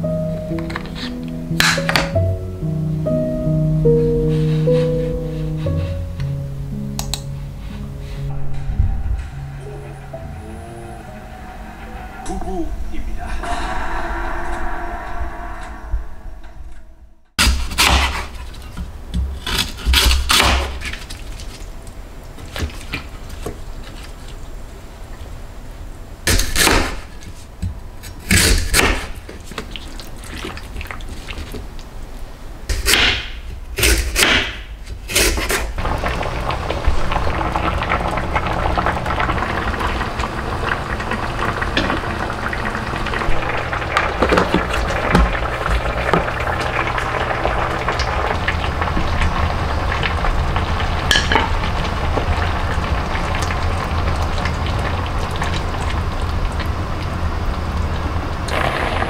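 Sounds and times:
water simmering in a pan: 0:35.8 - 0:59.0.

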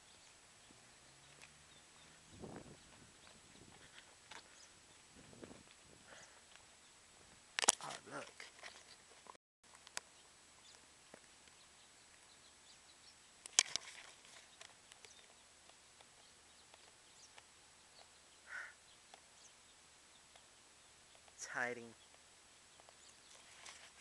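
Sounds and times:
sharp clicks: 0:13.4 - 0:13.9.

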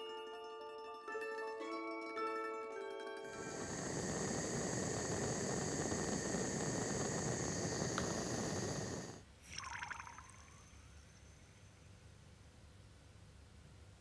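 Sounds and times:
hot metal sizzling in oil: 0:03.3 - 0:09.2
gas torch flame hissing: 0:03.3 - 0:09.3.

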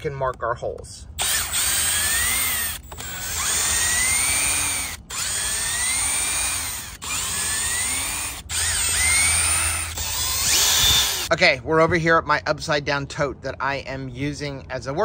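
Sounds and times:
cordless drill motor whine: 0:01.2 - 0:11.3.

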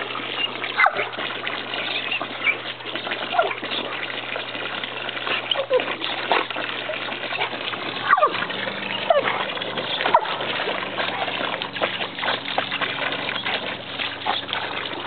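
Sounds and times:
hose water splashing into pool: 0:00.0 - 0:15.0
dog snapping at water: 0:00.4 - 0:15.0
dog whining: 0:08.0 - 0:10.3.

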